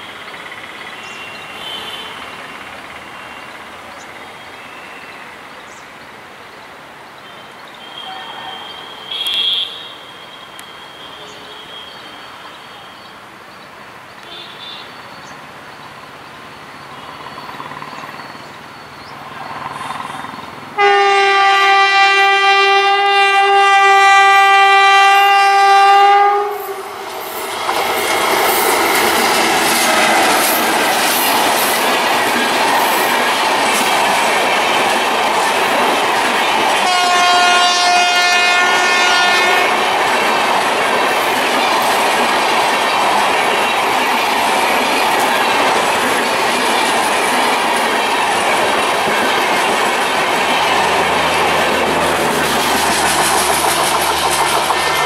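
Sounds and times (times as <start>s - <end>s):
train coaches rushing past: 0.0s - 6.2s, 6.8s - 55.0s
higher-pitched train horn: 1.4s - 2.4s, 7.8s - 12.2s, 20.8s - 27.0s, 36.8s - 40.0s, 54.6s - 55.0s
locomotive air horn: 1.5s - 2.3s, 7.9s - 10.0s, 14.2s - 14.9s, 20.8s - 26.9s, 36.8s - 39.8s
wheels clicking over rail joints: 39.9s - 55.0s.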